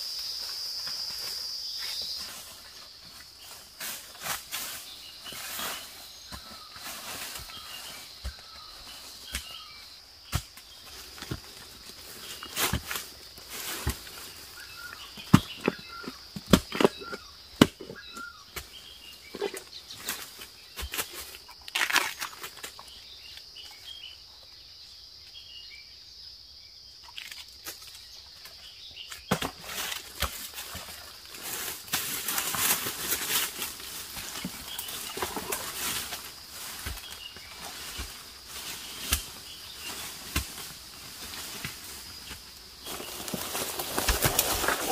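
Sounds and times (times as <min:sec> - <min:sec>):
digging tool striking soil: 0:09.2 - 0:11.5, 0:13.7 - 0:21.1
footsteps through dry leaves: 0:30.4 - 0:44.9.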